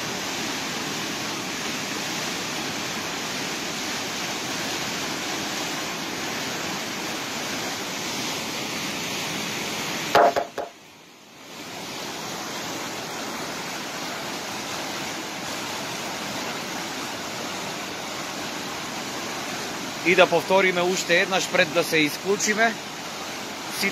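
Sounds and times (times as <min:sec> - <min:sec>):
floodwater rushing: 0:00.0 - 0:23.9
loud pitched blip: 0:10.2 - 0:10.7.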